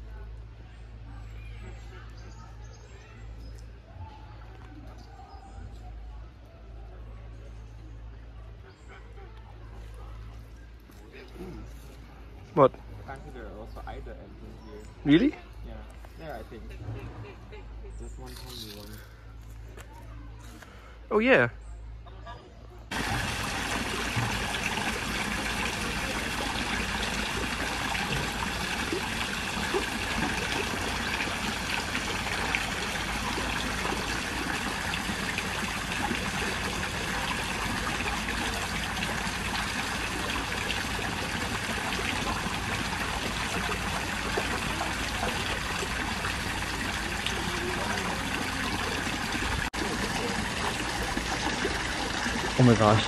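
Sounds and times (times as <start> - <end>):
running water trickling: 22.9 - 53.0.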